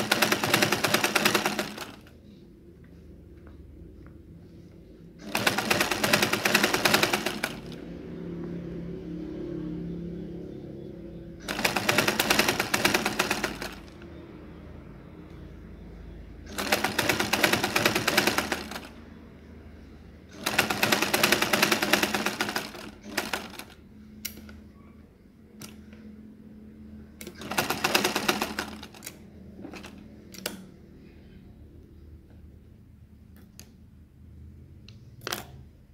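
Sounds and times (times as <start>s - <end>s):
sewing machine stitching: 0.0s - 2.1s, 5.2s - 7.8s, 11.4s - 14.1s, 16.5s - 19.0s, 20.3s - 24.5s, 27.2s - 30.0s.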